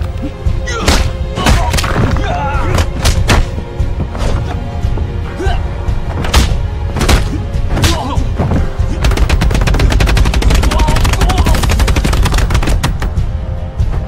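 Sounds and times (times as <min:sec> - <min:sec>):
dramatic score with low drums: 0:00.0 - 0:14.0
people shouting: 0:00.2 - 0:03.0, 0:10.5 - 0:11.9.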